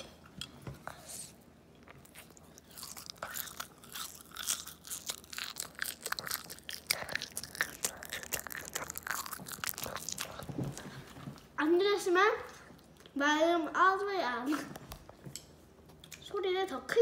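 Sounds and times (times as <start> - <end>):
candy crunched between teeth: 2.9 - 10.5.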